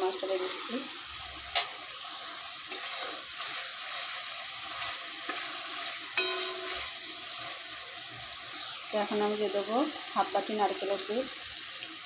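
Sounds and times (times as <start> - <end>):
prawns sizzling in bubbling sauce: 0.0 - 12.0
metal spatula stirring: 1.5 - 7.7
spatula clinking against pan: 6.2 - 7.0.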